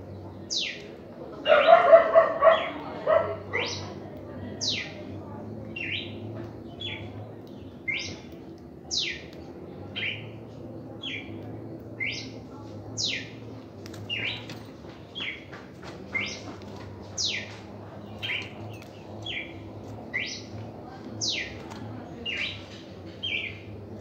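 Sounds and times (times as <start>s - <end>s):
bird singing whistled notes: 7.8s - 8.3s, 8.9s - 9.2s, 12.0s - 12.4s, 19.2s - 20.5s.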